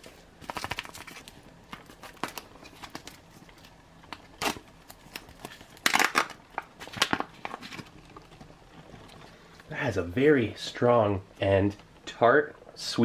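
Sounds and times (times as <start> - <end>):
packaging crinkling and rustling: 0.0 - 9.7.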